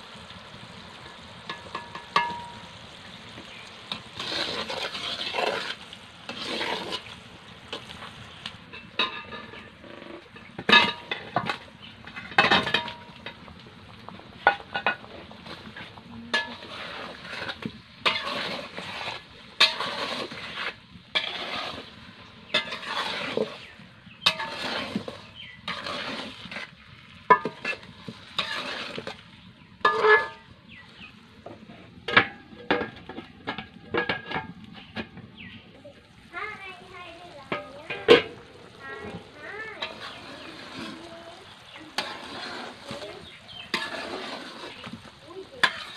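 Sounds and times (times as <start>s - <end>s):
syrup bubbling: 0.0s - 45.9s
ladle scraping a metal pan: 0.6s - 2.8s, 3.4s - 13.6s, 14.2s - 35.6s, 37.5s - 45.9s
metal lid clinking: 1.5s - 2.6s, 29.8s - 30.4s.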